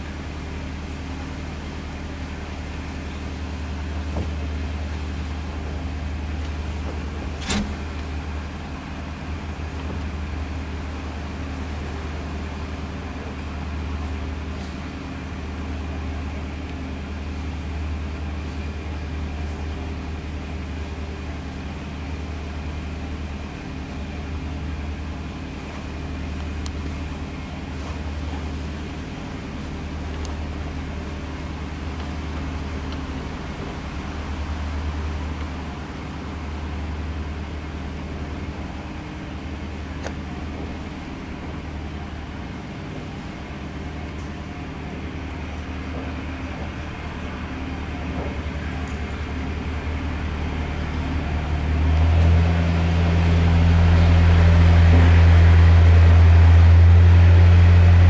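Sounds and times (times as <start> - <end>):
diesel engine droning: 0.0 - 58.0.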